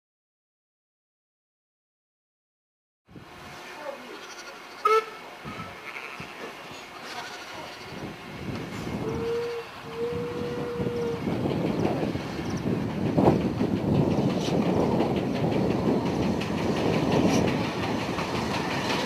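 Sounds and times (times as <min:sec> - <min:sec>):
train running noise: 0:03.1 - 0:19.0
train whistle blasts: 0:04.8 - 0:05.8, 0:09.0 - 0:11.3.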